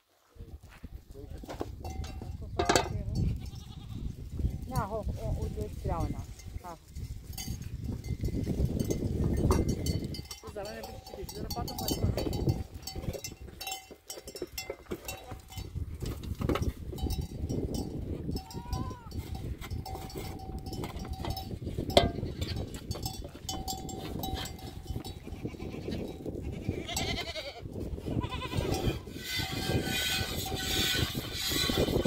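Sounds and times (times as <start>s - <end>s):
bell clinking: 17.0s - 25.2s
goats bleating: 18.4s - 19.2s, 25.0s - 29.4s.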